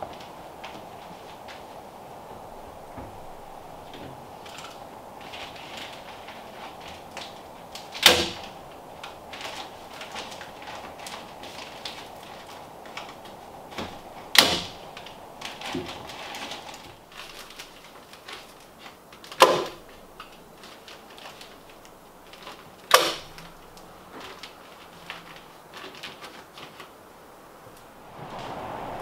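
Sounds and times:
insulation rustling: 0.0s - 29.0s.

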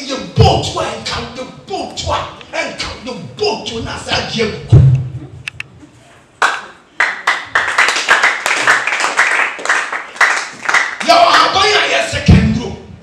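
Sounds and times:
loud low thump: 4.7s - 5.2s
congregation clapping in rhythm: 6.4s - 12.4s.

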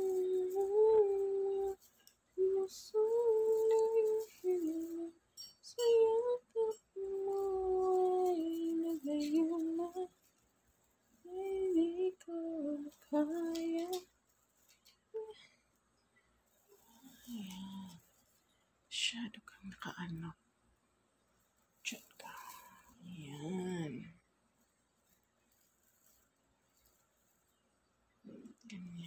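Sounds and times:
woman humming a tune: 0.0s - 1.8s, 2.4s - 10.1s, 11.2s - 14.0s, 15.1s - 15.4s, 16.8s - 18.0s.

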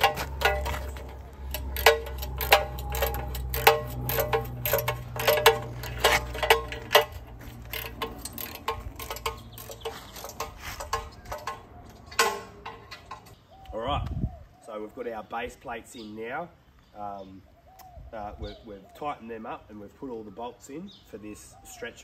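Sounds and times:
ratchet spanner clicking: 0.0s - 11.7s.

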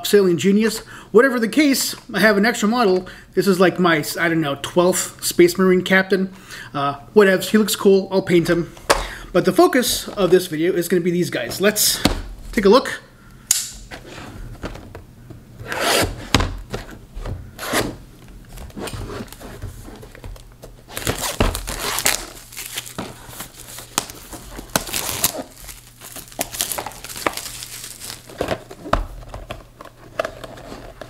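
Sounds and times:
plastic shrink wrap tearing: 20.1s - 28.7s.

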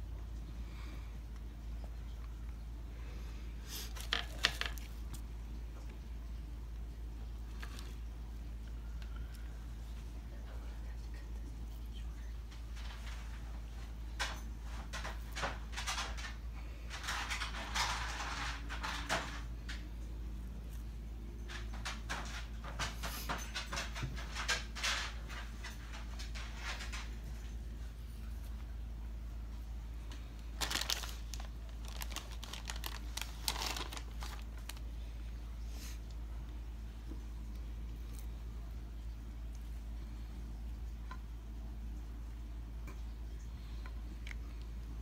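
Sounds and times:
low steady hum: 0.0s - 45.0s
hands rustling and scraping food: 3.6s - 6.0s, 20.5s - 38.7s
plastic packaging crinkling: 3.8s - 5.2s, 14.9s - 19.5s, 30.1s - 35.0s.

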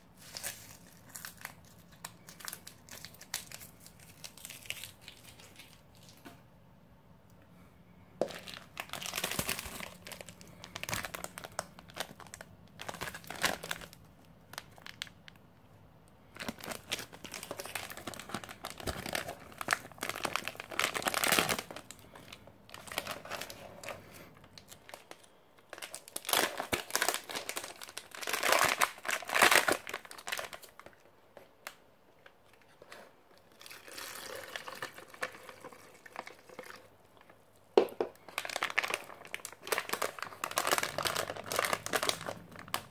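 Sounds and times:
packaging crinkling: 0.2s - 6.3s, 8.2s - 15.4s, 16.3s - 31.8s, 37.8s - 42.9s.

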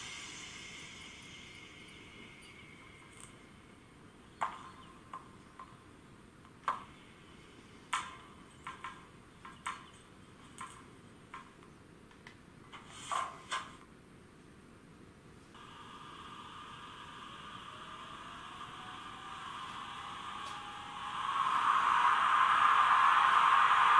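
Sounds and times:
model locomotive hisses: 0.0s - 3.7s, 15.6s - 23.9s.

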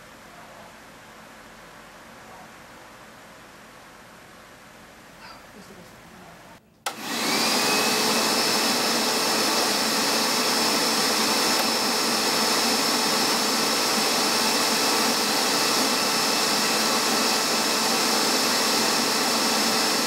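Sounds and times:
carpet cleaner motor whining: 6.8s - 20.0s.

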